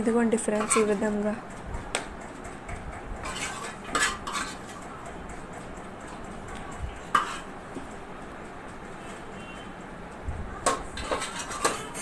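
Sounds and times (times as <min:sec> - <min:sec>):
metal spoon scraping a pot: 0:00.4 - 0:01.0, 0:03.2 - 0:04.8, 0:07.1 - 0:07.5, 0:10.7 - 0:12.0.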